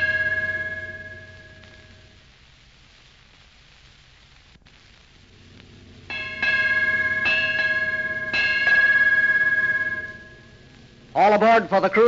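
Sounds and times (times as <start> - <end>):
ship's bell ringing: 0.0 - 2.2, 5.8 - 11.2
old recording hiss: 0.0 - 12.0.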